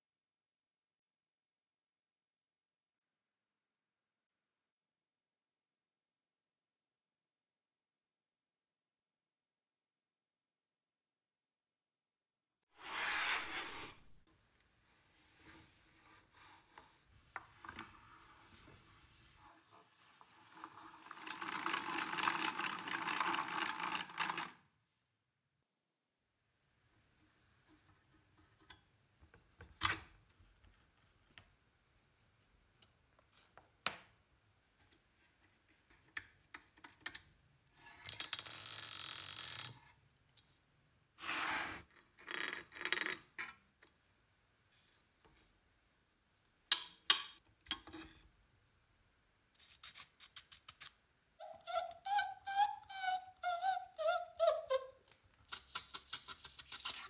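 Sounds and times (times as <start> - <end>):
scraping noises: 12.8 - 14.2
squeaking creak sliding down: 51.4 - 55.0.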